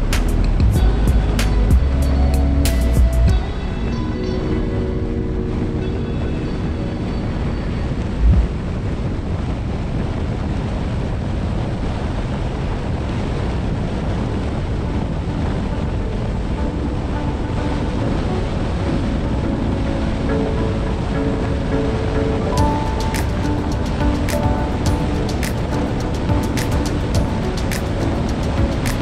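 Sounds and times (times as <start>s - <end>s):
car road and wind rush: 0.0s - 29.0s
low thump: 8.2s - 8.6s.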